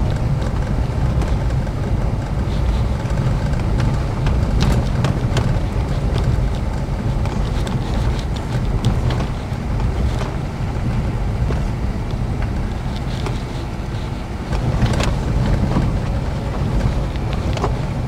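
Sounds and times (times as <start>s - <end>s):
vehicle rumble: 0.0s - 18.0s
wind buffeting microphone: 0.0s - 18.0s.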